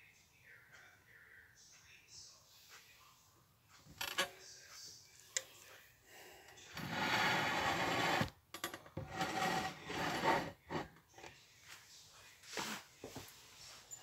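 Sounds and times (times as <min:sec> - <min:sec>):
rubbing by microphone: 0:06.8 - 0:08.3, 0:09.0 - 0:10.9.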